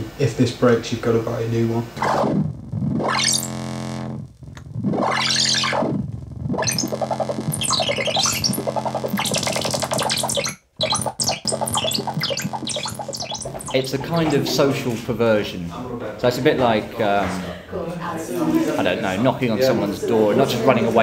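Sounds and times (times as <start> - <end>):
low synth drone: 2.0 - 13.8
fast run of synth notes: 2.0 - 14.4
synthesizer filter sweeps: 2.0 - 14.5.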